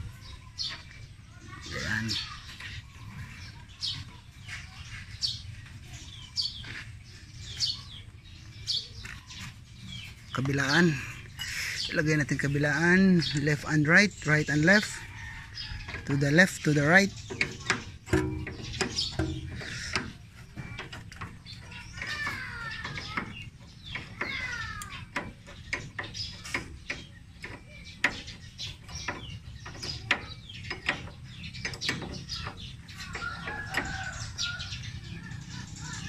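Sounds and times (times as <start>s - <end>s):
birds calling: 0.0s - 36.0s
metal tools clicking and knocking: 15.8s - 34.2s.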